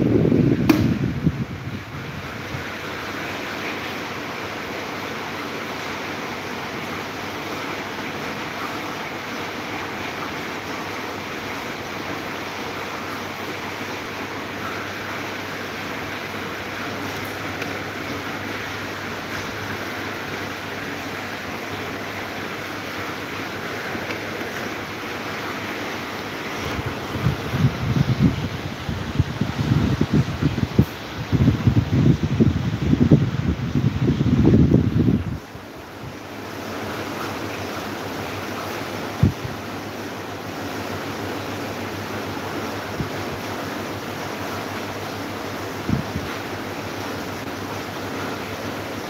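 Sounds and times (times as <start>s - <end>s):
wind buffeting microphone: 0.0s - 2.7s, 26.6s - 35.6s, 39.2s - 39.6s, 45.8s - 46.4s
electric fan whoosh: 0.0s - 3.5s, 12.2s - 37.0s, 45.0s - 47.4s
sharp click: 0.7s - 1.0s.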